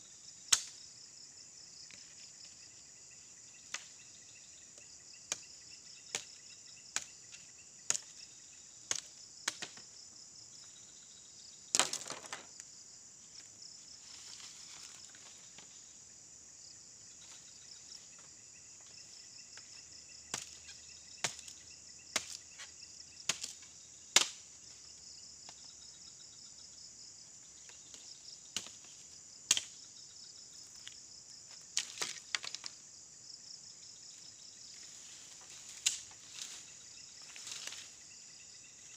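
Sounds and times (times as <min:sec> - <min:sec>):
insect chirping: 0:00.0 - 0:38.9
bamboo stems cracking and snapping: 0:00.5 - 0:00.8, 0:11.7 - 0:12.4, 0:24.2 - 0:24.4, 0:29.5 - 0:29.7, 0:31.8 - 0:32.8, 0:35.7 - 0:36.6.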